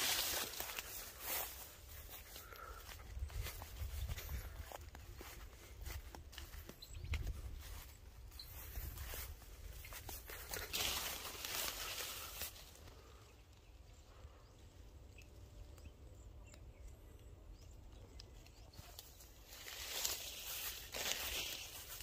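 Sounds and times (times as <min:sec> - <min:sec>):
footsteps in dry leaves: 0:00.0 - 0:13.2, 0:18.6 - 0:22.0.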